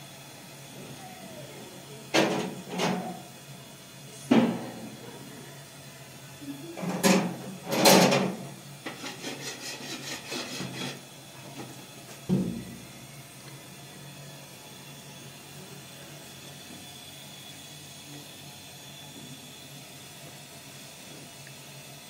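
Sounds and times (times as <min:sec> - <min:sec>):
objects knocking and scraping: 0:06.8 - 0:11.0
quick rubbing strokes: 0:09.0 - 0:11.0.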